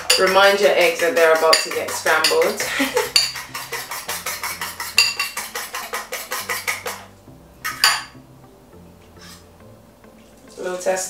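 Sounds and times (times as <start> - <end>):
fork beating eggs in bowl: 0.0 - 7.1.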